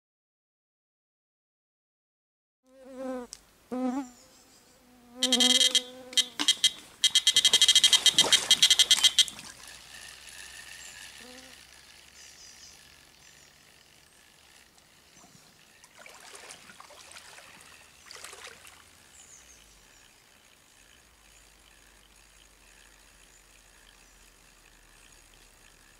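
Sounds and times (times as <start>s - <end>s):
bite alarm bleeping: 5.2s - 9.4s
splashing of wading: 6.4s - 10.0s, 15.7s - 19.1s.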